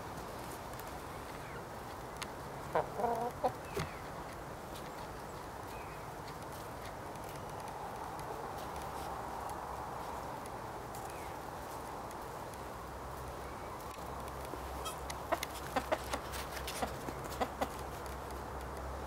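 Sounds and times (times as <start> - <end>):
steady low background noise: 0.0 - 19.0
chickens clucking: 2.6 - 4.0, 14.7 - 18.2.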